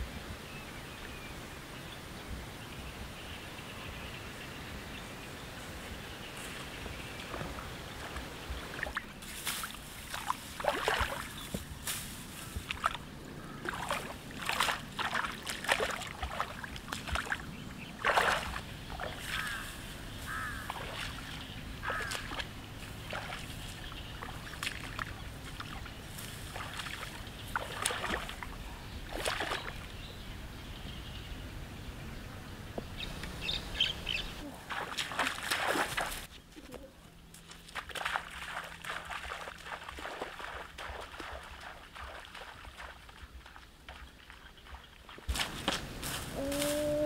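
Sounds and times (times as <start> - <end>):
footsteps through wet grass: 6.3 - 29.9, 34.4 - 47.0
footsteps splashing in muddy water: 6.5 - 29.9, 34.4 - 47.0.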